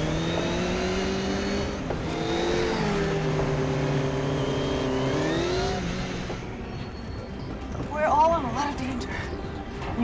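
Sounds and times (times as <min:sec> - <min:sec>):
motorcycle engines revving: 0:00.0 - 0:07.2.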